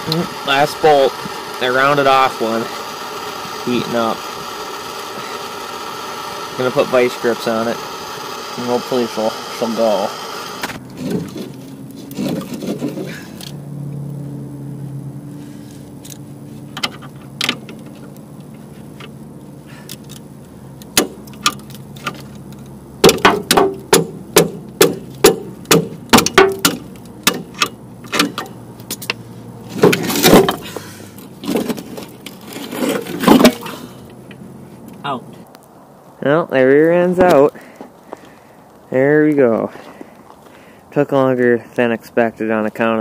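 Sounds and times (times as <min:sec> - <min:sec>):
metal knocking and clanking: 0:23.0 - 0:30.6
metal clatter: 0:25.2 - 0:30.8.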